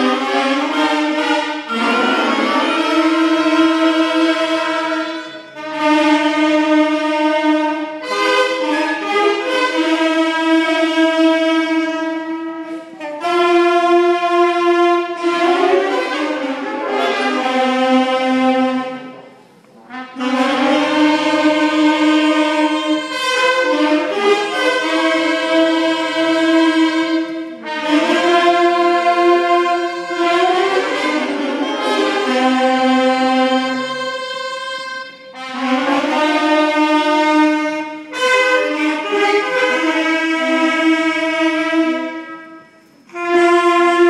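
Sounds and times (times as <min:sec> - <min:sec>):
school band playing melody: 0:00.0 - 0:44.0.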